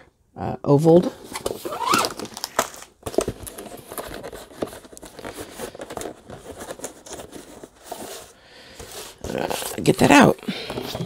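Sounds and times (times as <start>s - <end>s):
plastic bag crinkling: 1.3s - 11.0s.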